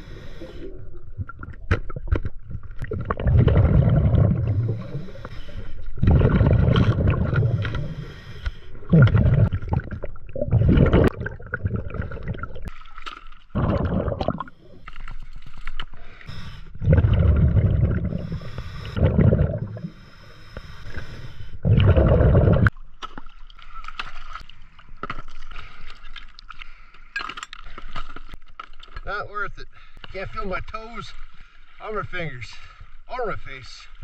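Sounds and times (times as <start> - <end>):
underwater exhaled bubbles: 0.0 - 12.8, 13.5 - 15.7, 16.3 - 20.0, 20.9 - 22.7.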